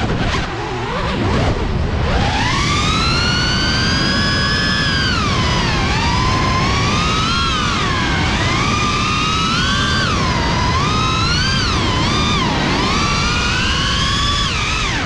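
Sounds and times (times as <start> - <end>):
drone motors whining: 0.0 - 15.0
prop wash and wind rush: 0.0 - 15.0.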